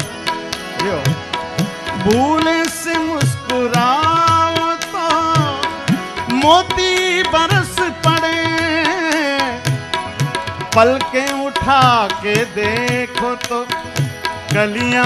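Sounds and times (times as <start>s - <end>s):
harmonium: 0.0s - 15.0s
tabla strokes: 0.0s - 15.0s
man singing long wordless notes: 1.9s - 10.0s, 10.6s - 15.0s.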